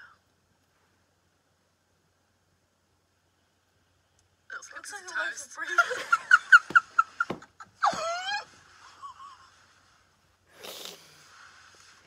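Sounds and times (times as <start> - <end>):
young women laughing: 5.6 - 9.6.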